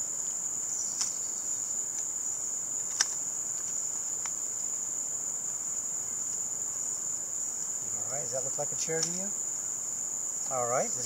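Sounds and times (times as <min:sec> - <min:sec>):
crickets chirping: 0:00.0 - 0:11.0
camp chair poles clicking: 0:02.8 - 0:04.4.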